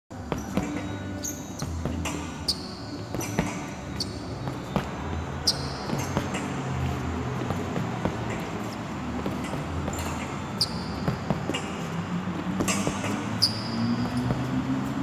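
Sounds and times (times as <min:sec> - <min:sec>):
punches thudding on heavy bag: 0:03.1 - 0:05.0, 0:09.2 - 0:10.3, 0:12.6 - 0:13.3.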